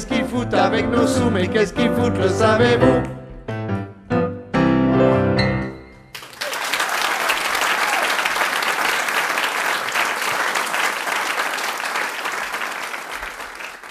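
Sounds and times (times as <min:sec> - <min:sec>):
audience applause: 0:06.1 - 0:13.9.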